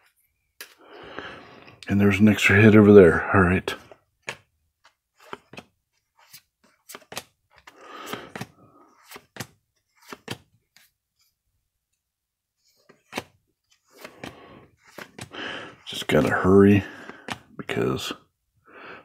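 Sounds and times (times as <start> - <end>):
cards sliding rustle: 3.8 - 11.4, 12.6 - 17.6.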